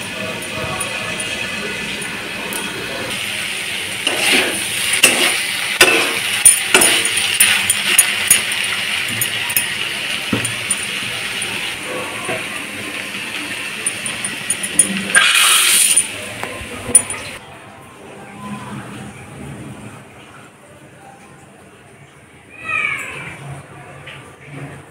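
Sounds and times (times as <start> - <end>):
metal spatula clinking and scraping: 4.0 - 11.7, 13.8 - 16.2.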